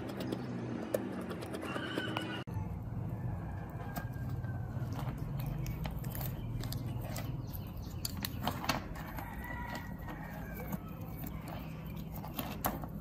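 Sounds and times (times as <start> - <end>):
rooster crowing: 1.6 - 5.0, 9.0 - 11.4.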